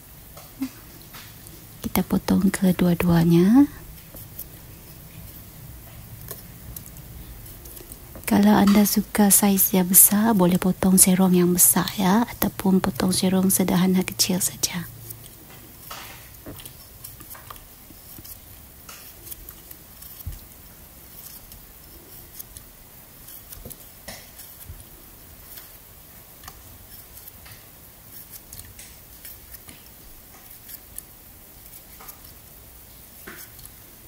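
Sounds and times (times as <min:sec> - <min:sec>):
knife slicing cucumber: 0:15.0 - 0:25.8.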